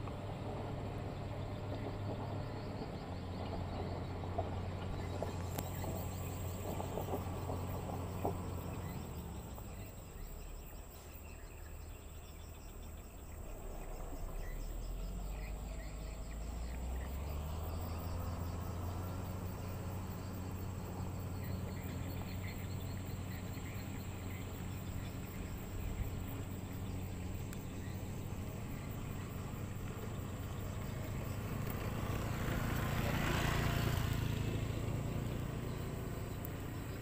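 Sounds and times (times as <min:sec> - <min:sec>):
diesel engine running: 0:00.0 - 0:37.0
high insect trill: 0:01.2 - 0:37.0.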